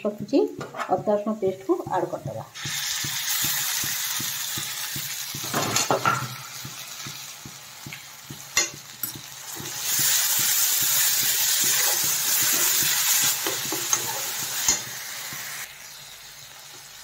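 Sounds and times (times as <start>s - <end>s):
onions sizzling in hot oil: 0.0s - 17.0s
steel spatula scraping pan: 9.5s - 15.1s.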